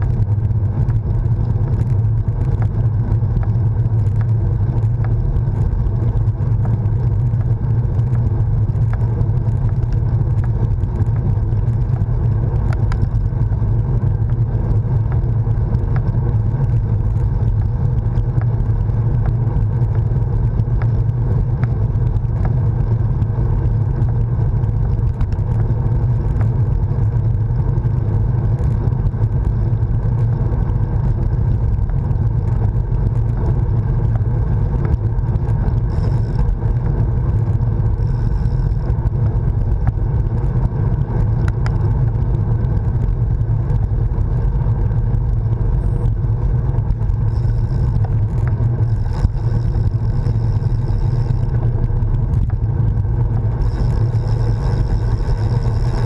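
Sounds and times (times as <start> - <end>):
tyre and road noise: 0.0 - 56.0.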